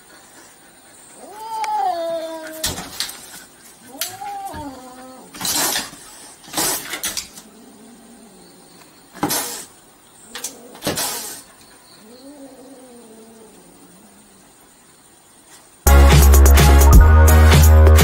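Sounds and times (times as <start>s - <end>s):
kitten hissing and spitting: 5.3s - 7.2s, 9.2s - 9.8s, 10.8s - 11.5s
kitten growl-yowls: 12.0s - 14.2s.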